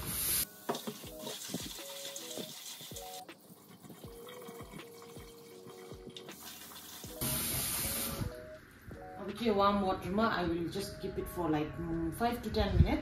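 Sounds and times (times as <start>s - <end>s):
tap running into plastic bowl: 0.7s - 1.4s.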